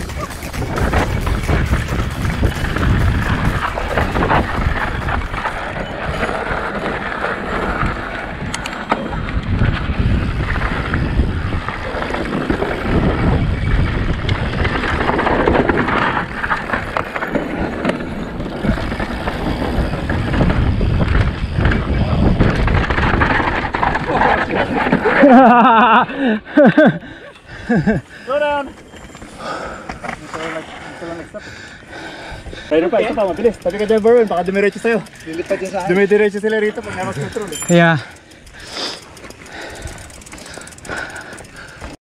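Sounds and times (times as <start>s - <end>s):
wind on microphone: 0.0s - 24.9s
bike rattling and knocking: 0.0s - 27.0s, 27.6s - 42.0s.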